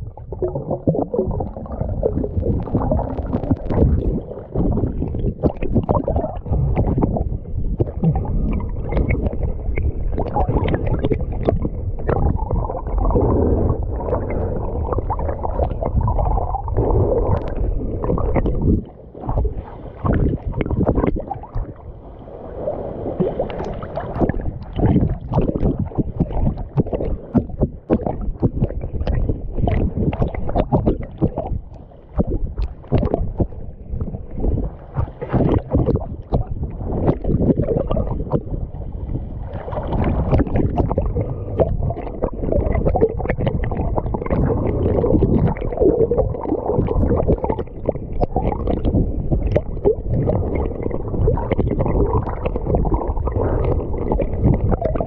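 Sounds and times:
seawater splashing and sloshing: 0:00.0 - 0:55.0.

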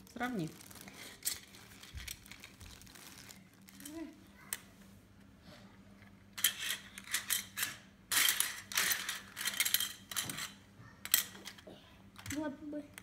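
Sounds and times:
plastic tiles clattering: 0:06.3 - 0:11.6.

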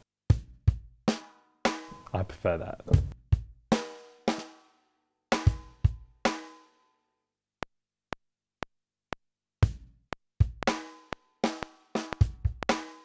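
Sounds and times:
kick and snare drum hits: 0:02.9 - 0:04.5, 0:05.4 - 0:06.5, 0:09.6 - 0:13.0.

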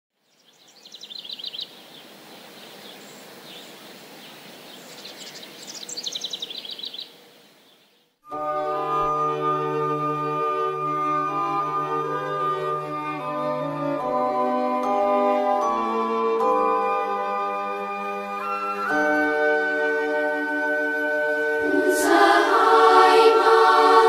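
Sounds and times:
songbird singing: 0:00.1 - 0:08.2
background hiss: 0:00.2 - 0:24.0
instrumental music with held chords: 0:08.2 - 0:24.0.

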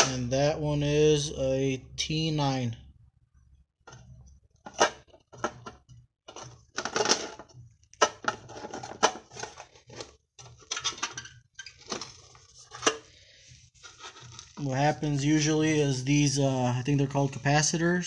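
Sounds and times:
metal scraping: 0:06.3 - 0:17.9.

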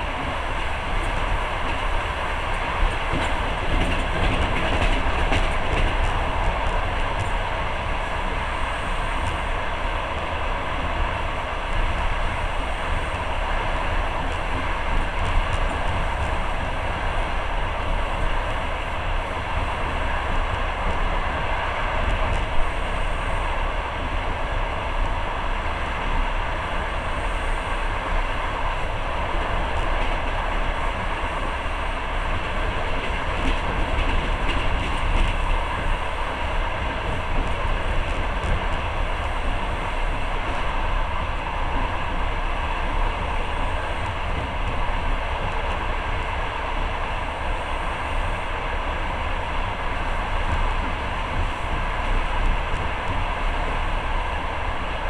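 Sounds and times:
train wheels on rails: 0:00.0 - 0:55.0.

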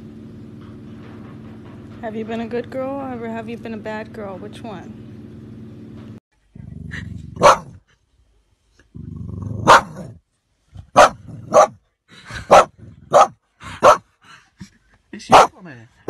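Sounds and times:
dog growling: 0:06.5 - 0:07.6, 0:08.9 - 0:10.1
dog barking: 0:07.4 - 0:07.8, 0:09.6 - 0:10.1, 0:10.9 - 0:11.8, 0:12.5 - 0:14.1, 0:15.3 - 0:15.6.

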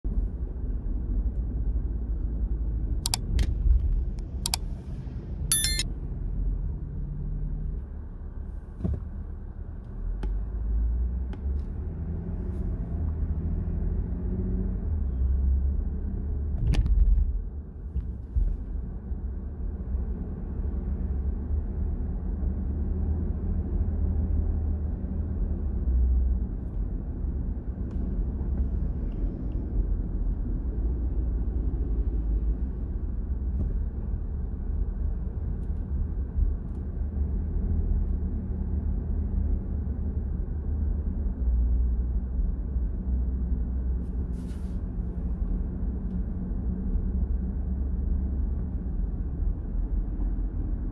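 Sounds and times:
car engine and tyre noise: 0:00.0 - 0:50.9.

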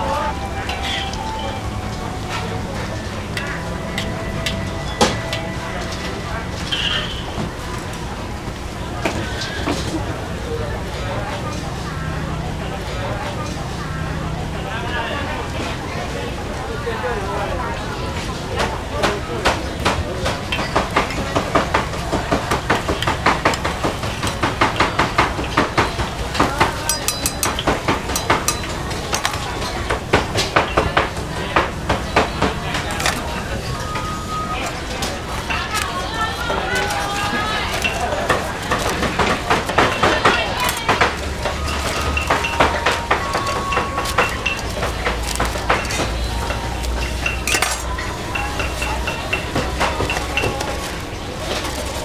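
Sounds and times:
utensils and dishes clinking: 0:00.0 - 0:10.4, 0:18.5 - 0:52.0
high metallic ring: 0:26.9 - 0:27.6.

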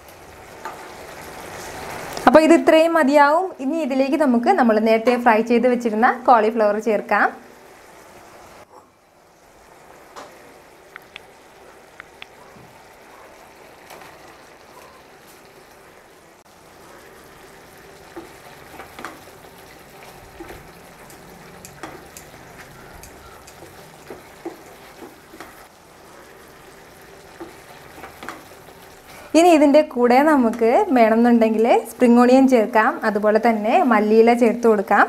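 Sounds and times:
sauce bubbling and sizzling: 0:00.0 - 0:04.7, 0:05.9 - 0:35.0
spatula scraping and tapping pan: 0:20.3 - 0:25.6.

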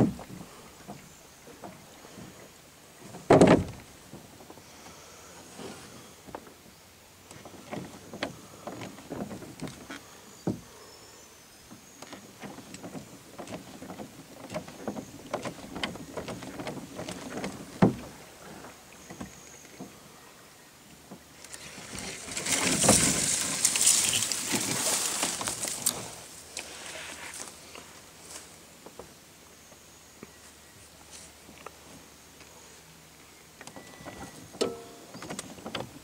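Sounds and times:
paddle splashes: 0:20.9 - 0:29.0.

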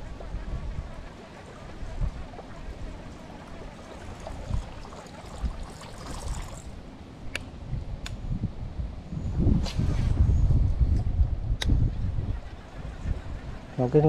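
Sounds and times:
wind rumble on microphone: 0:00.0 - 0:14.0
lure splashing on water: 0:03.4 - 0:06.8.

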